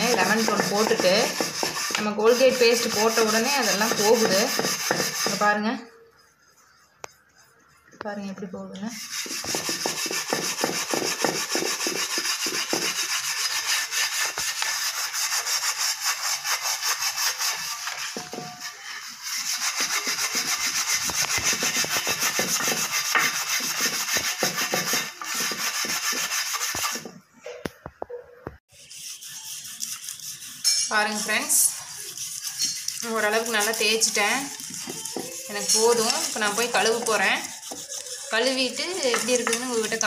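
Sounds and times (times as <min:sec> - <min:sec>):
scrubber scraping metal pan: 0:00.0 - 0:05.6, 0:08.9 - 0:27.1, 0:28.7 - 0:40.0.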